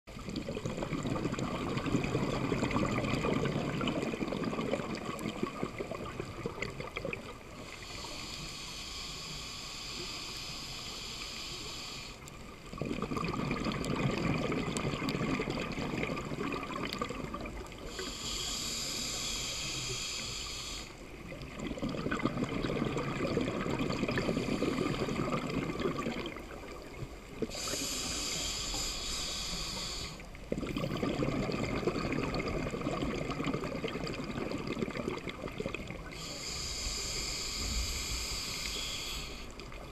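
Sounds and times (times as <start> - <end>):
exhaled bubbles underwater: 0.1 - 8.1, 12.5 - 20.4, 21.0 - 39.9
regulator hissing on inhale: 7.6 - 12.4, 17.8 - 21.3, 24.0 - 26.0, 27.4 - 30.4, 36.0 - 39.8.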